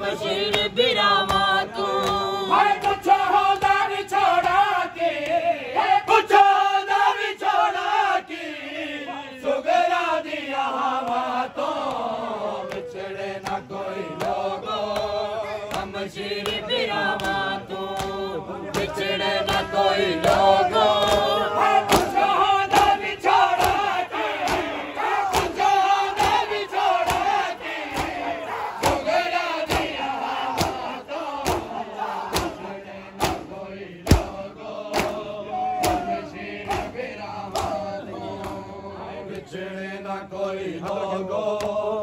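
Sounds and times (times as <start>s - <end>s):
men chanting in chorus: 0.0s - 42.0s
hands slapping chests: 21.9s - 30.0s, 30.6s - 35.2s, 35.8s - 38.6s.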